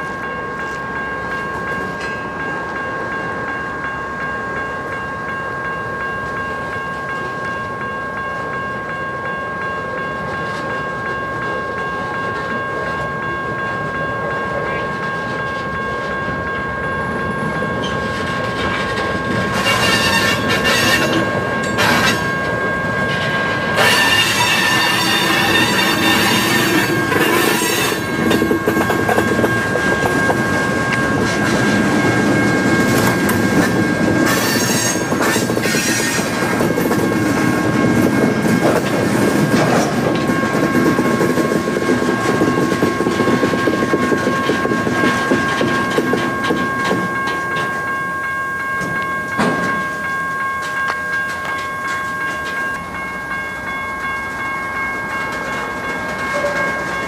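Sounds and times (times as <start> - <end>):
steady high ringing tone: 0.0 - 57.0
steel wheels rumbling over rail joints: 14.6 - 48.0.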